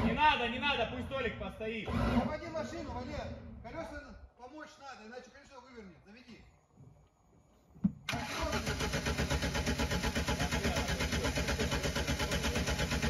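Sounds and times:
car engine starting and running: 0:00.0 - 0:03.8, 0:07.9 - 0:13.0.

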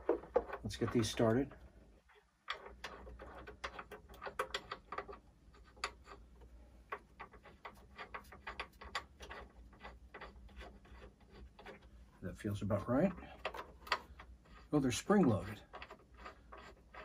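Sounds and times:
metal screws clicking and ticking: 0:02.1 - 0:11.9, 0:13.2 - 0:14.7, 0:15.5 - 0:17.0.

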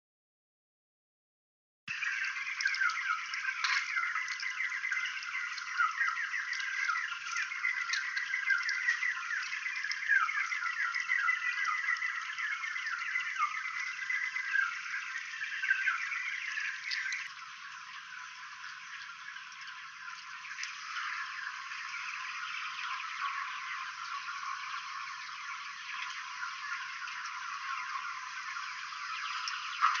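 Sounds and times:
fish chirping underwater: 0:01.9 - 0:30.0.

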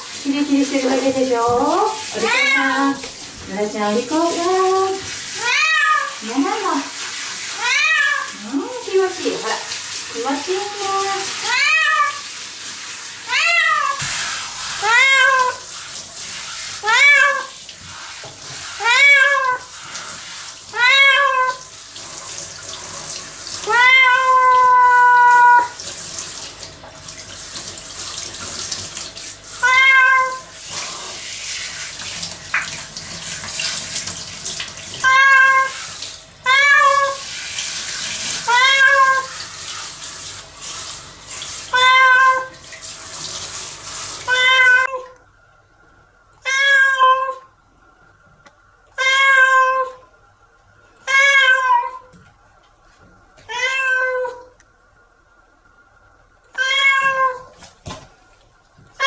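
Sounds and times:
shower water running: 0:00.0 - 0:59.0
cat meowing: 0:05.4 - 0:06.2, 0:07.6 - 0:08.3, 0:11.4 - 0:12.2, 0:13.3 - 0:14.0, 0:20.7 - 0:21.6, 0:23.6 - 0:25.8, 0:29.6 - 0:30.4, 0:36.4 - 0:37.2, 0:38.4 - 0:39.3, 0:41.7 - 0:42.5, 0:44.3 - 0:45.2, 0:46.4 - 0:47.5, 0:49.0 - 0:50.0, 0:51.0 - 0:52.1, 0:53.5 - 0:54.5, 0:56.5 - 0:57.5.

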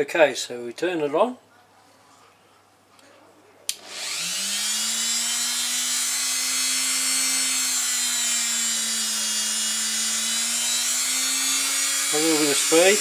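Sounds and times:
rotary tool whining: 0:03.8 - 0:13.0.

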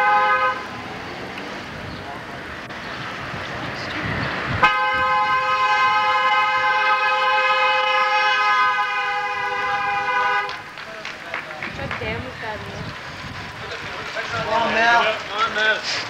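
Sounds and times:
car horn blast: 0:00.0 - 0:00.7, 0:04.6 - 0:10.6.

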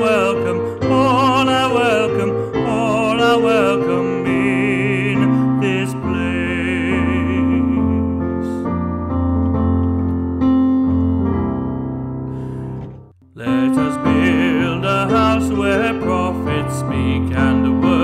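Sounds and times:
person singing hymn: 0:00.0 - 0:08.6, 0:13.3 - 0:18.0
keyboard chords: 0:00.0 - 0:18.0.

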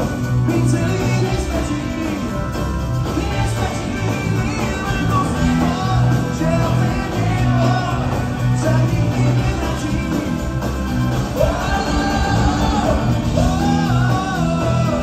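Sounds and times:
live rock band playing: 0:00.0 - 0:15.0
person singing: 0:11.3 - 0:15.0.

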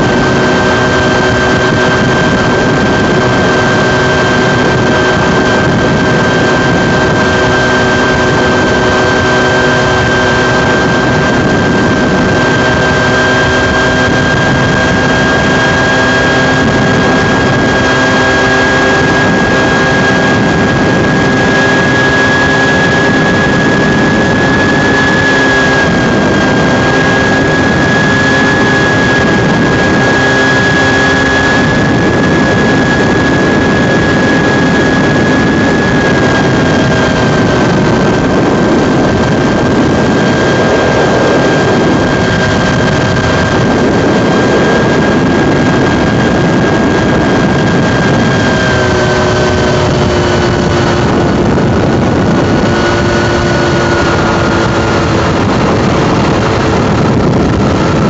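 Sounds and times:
light aircraft engine drone: 0:00.0 - 0:58.0
rushing air: 0:00.0 - 0:58.0.

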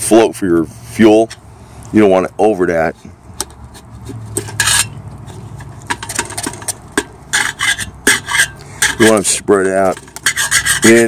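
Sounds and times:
rubbing scrapes: 0:03.6 - 0:11.0.

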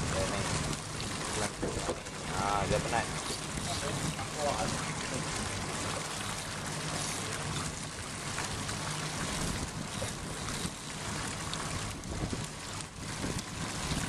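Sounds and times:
low motor hum: 0:00.0 - 0:14.0
sea noise: 0:00.0 - 0:14.0
wind: 0:00.0 - 0:14.0.

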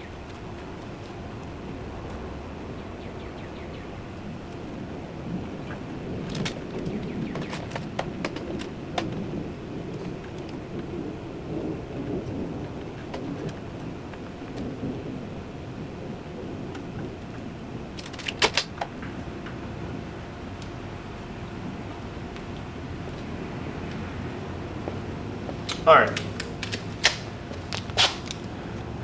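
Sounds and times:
distant thunder rumble: 0:00.0 - 0:27.7.

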